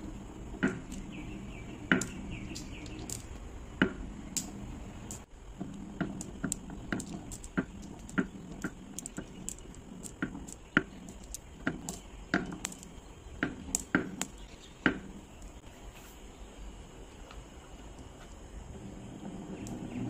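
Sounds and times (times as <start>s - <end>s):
glass marbles rolling in groove: 0.0s - 15.6s
marbles clicking together: 0.0s - 15.6s.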